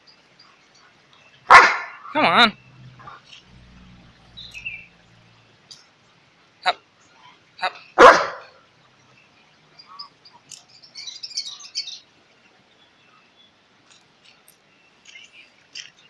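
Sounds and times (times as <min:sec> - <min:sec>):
dog barking: 0:01.5 - 0:02.0, 0:08.0 - 0:08.6.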